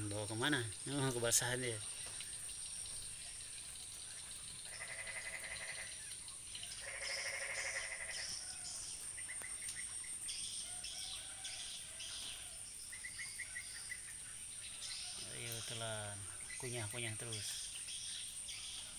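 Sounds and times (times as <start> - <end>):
high-pitched insect hum: 0.0 - 14.0
frogs calling: 0.0 - 18.9
rain: 0.0 - 18.9.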